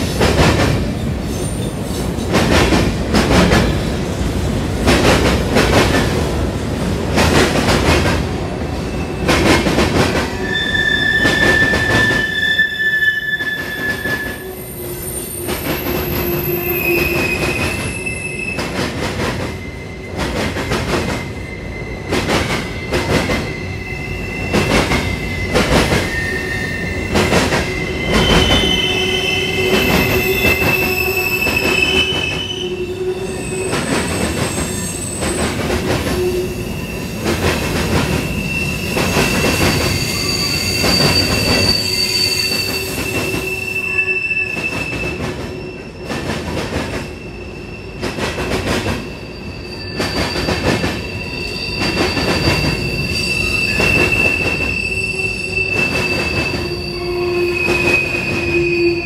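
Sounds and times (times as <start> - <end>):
train wheels rumbling on rail: 0.0 - 59.0
wheels squealing: 38.2 - 44.9.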